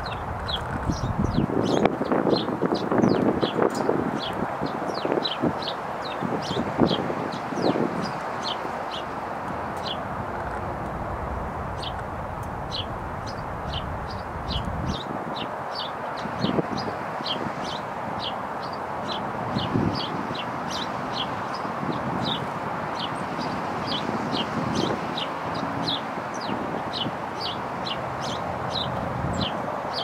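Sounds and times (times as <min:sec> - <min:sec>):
songbirds chirping: 0:00.0 - 0:30.0
low background rush: 0:07.6 - 0:16.6.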